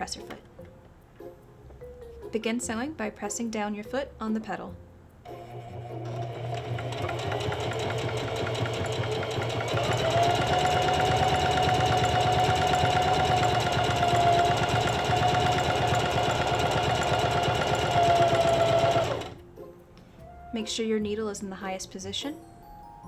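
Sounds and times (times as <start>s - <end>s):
sewing machine stitching: 5.3s - 19.4s.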